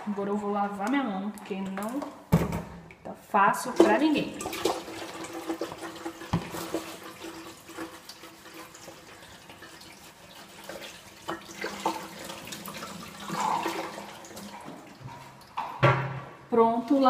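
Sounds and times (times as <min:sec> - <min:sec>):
tap water running into sink: 0:03.7 - 0:16.3.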